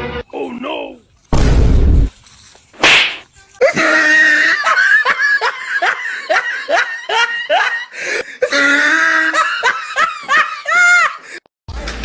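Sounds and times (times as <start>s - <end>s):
loud laughter: 3.6s - 11.3s.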